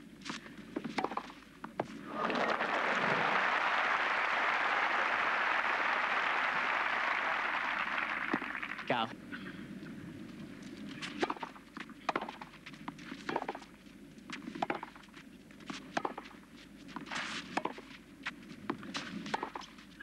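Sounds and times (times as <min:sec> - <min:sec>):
tennis racquets striking ball: 0:00.8 - 0:01.4, 0:11.1 - 0:12.5, 0:13.2 - 0:13.7, 0:14.4 - 0:15.0, 0:15.8 - 0:16.4, 0:17.4 - 0:17.9, 0:18.7 - 0:19.7
tennis ball bouncing: 0:00.8 - 0:01.9, 0:11.2 - 0:13.7, 0:14.3 - 0:15.1, 0:15.7 - 0:16.4, 0:17.0 - 0:19.7.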